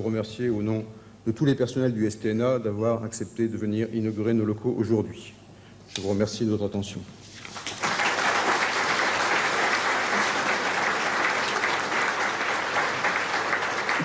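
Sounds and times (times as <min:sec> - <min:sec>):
large audience applauding: 0:07.5 - 0:14.0.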